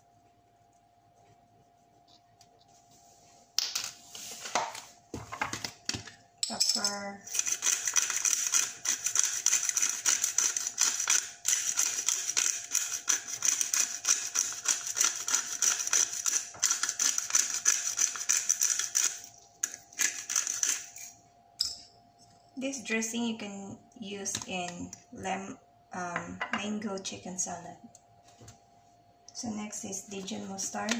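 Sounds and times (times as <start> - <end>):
pepper grinder grinding: 6.4 - 21.2.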